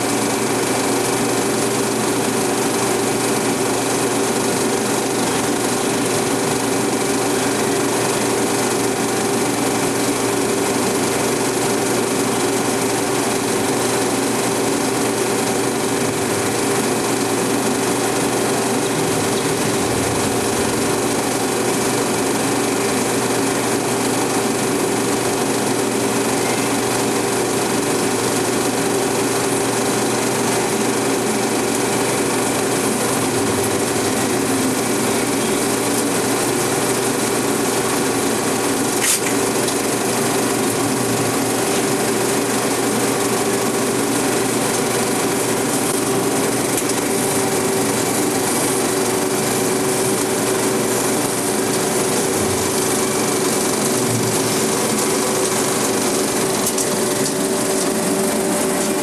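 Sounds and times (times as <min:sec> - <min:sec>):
constant hum: 0:15.1 - 0:22.4, 0:44.2 - 0:59.0
sharp click: 0:39.0 - 0:39.4.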